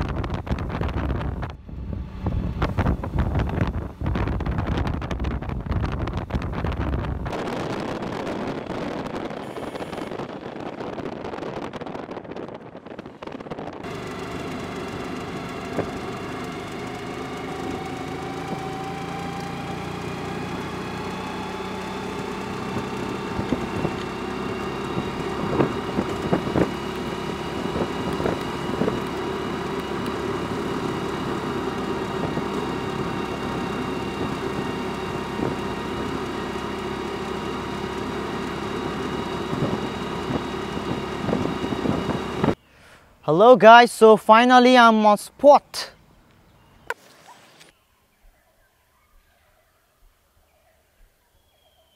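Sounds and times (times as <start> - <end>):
wind rushing: 0.0 - 13.9
vehicle engine hum: 0.0 - 42.9.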